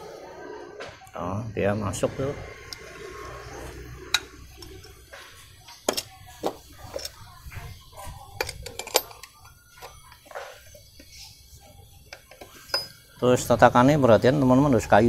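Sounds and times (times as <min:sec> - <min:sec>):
metal clinks and knocks: 0:04.1 - 0:11.2, 0:12.1 - 0:13.2.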